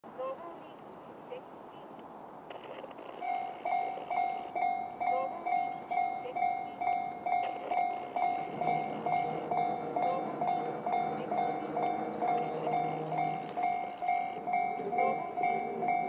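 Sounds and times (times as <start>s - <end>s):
level crossing bell dinging: 3.2s - 16.0s
low steady hum: 3.3s - 16.0s.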